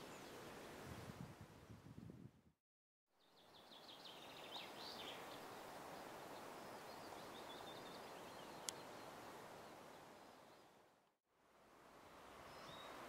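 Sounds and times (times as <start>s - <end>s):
small birds singing: 3.2s - 10.8s, 12.4s - 13.0s.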